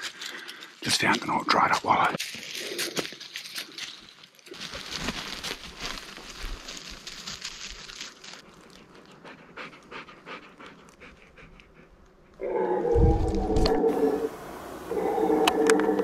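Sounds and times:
crunching of dry leaves: 0:00.0 - 0:09.4
dog panting: 0:08.4 - 0:12.4.

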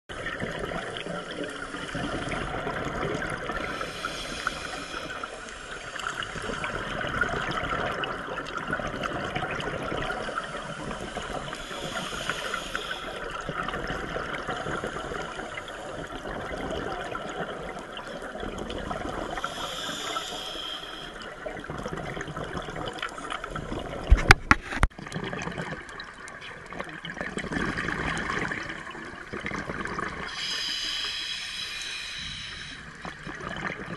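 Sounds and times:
steady crackle: 0:00.1 - 0:33.9
underwater exhaust bubbles rushing: 0:00.1 - 0:33.9.

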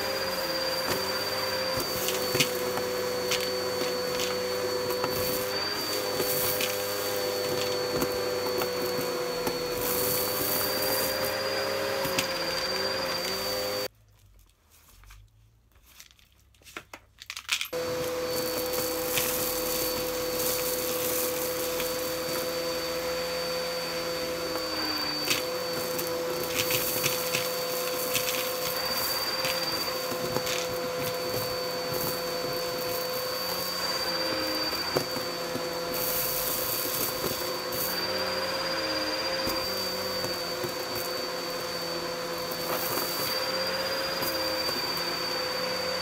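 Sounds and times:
vacuum cleaner motor hum: 0:00.0 - 0:13.9, 0:17.7 - 0:46.0
debris rattling up vacuum hose: 0:17.3 - 0:46.0.

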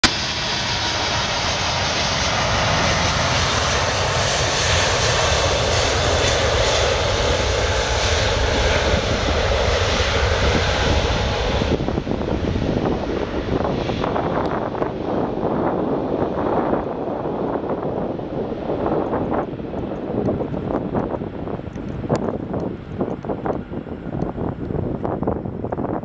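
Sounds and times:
jet engines rumbling and hissing: 0:00.0 - 0:26.0.

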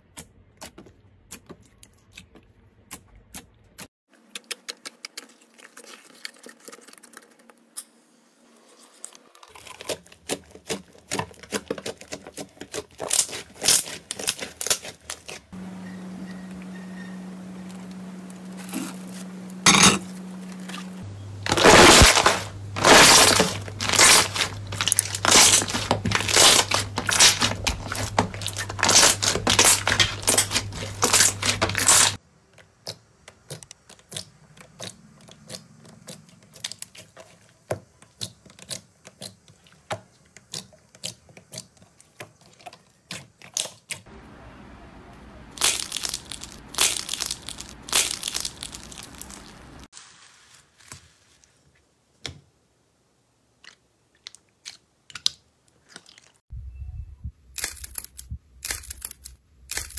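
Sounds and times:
foam squishy crinkling: 0:03.8 - 0:07.9, 0:08.6 - 0:15.6, 0:17.4 - 0:44.1, 0:45.5 - 0:51.9, 0:53.6 - 0:56.4
slime crackling and popping: 0:21.5 - 0:32.2, 0:45.6 - 0:50.2.

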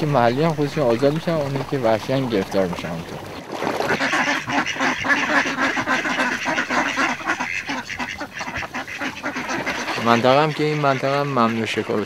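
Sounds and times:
ducks quacking: 0:00.0 - 0:12.0.

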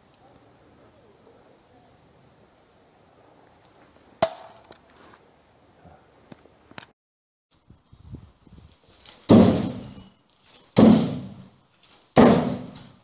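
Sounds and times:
bayonets thudding into board target: 0:04.2 - 0:04.7, 0:09.1 - 0:09.9, 0:10.7 - 0:11.5, 0:12.2 - 0:13.0.

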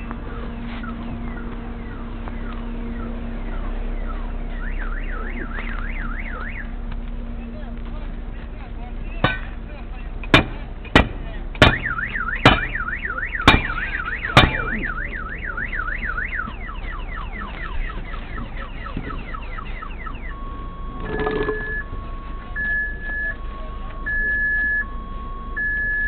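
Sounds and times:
car alarm warbling and chirping: 0:00.0 - 0:06.8, 0:11.6 - 0:26.0
sharp bangs: 0:13.4 - 0:14.8.

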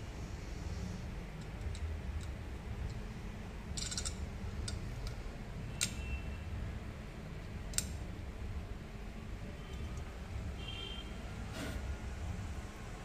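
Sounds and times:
steady low hum: 0:00.0 - 0:13.0
metal tools clicking on metal: 0:03.7 - 0:05.2.

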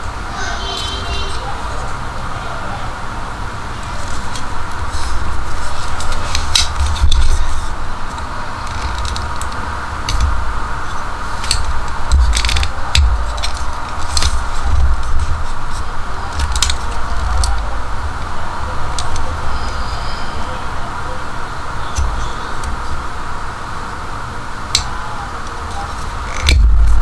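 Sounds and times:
handling rubs: 0:03.8 - 0:20.9
multitool metal clicks and snaps: 0:11.4 - 0:14.4, 0:24.7 - 0:24.9, 0:26.3 - 0:27.0
low rumble: 0:26.5 - 0:27.0.

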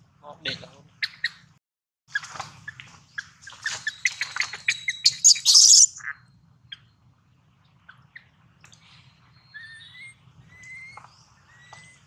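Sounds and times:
baby monkey squeaking: 0:03.6 - 0:06.0
baby monkey screaming: 0:04.7 - 0:06.0.

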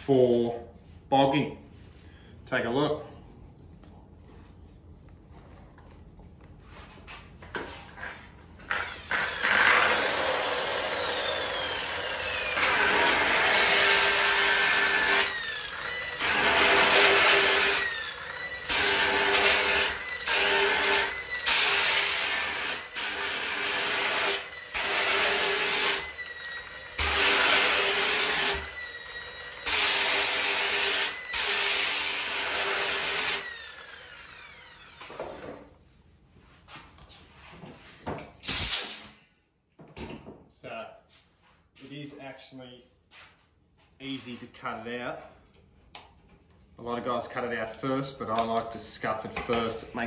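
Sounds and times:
sander motor whining: 0:33.4 - 0:35.4.

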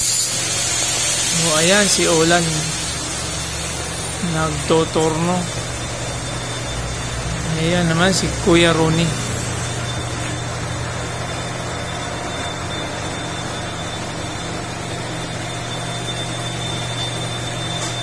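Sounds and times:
faint high whine: 0:00.0 - 0:18.0
machinery humming: 0:00.0 - 0:18.0.

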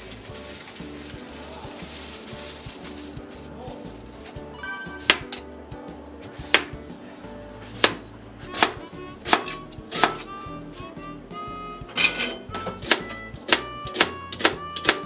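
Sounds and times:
background music: 0:00.0 - 0:15.0
knife chopping on cutting board: 0:07.8 - 0:10.3.

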